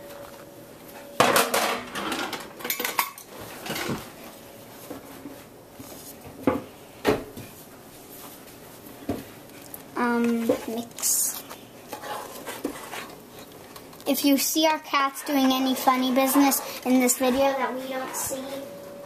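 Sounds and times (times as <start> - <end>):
pots and pans clattering: 1.2 - 4.0
thick sauce being stirred: 11.3 - 14.1.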